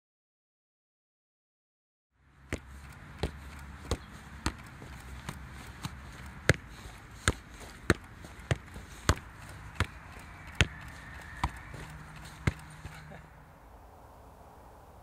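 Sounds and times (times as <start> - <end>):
football thudding on foot: 2.5 - 13.0.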